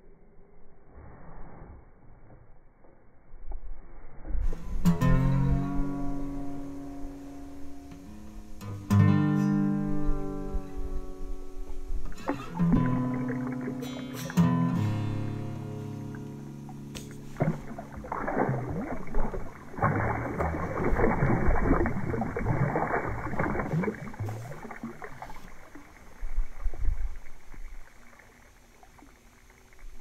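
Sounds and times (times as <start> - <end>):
water splashing and sloshing: 11.3 - 30.0.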